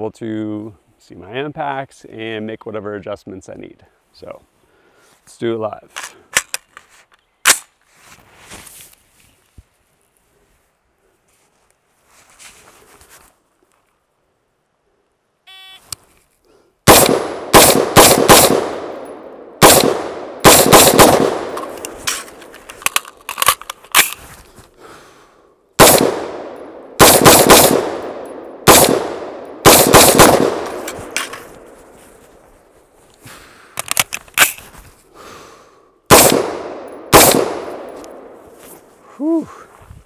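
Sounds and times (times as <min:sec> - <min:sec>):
short beep: 0:15.5 - 0:15.8
pistol shots with ringing echo: 0:16.9 - 0:21.6, 0:25.8 - 0:31.4, 0:36.1 - 0:38.4.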